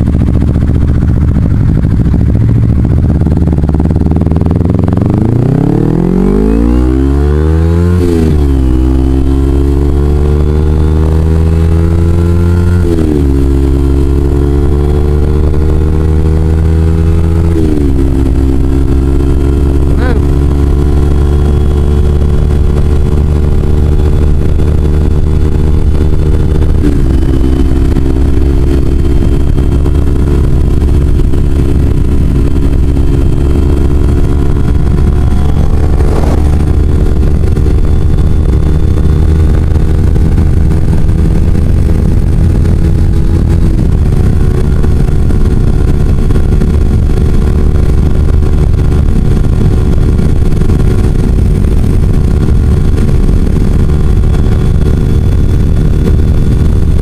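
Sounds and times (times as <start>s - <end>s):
motorcycle engine cruising: 0.0s - 57.0s
wind rumble on microphone: 0.0s - 57.0s.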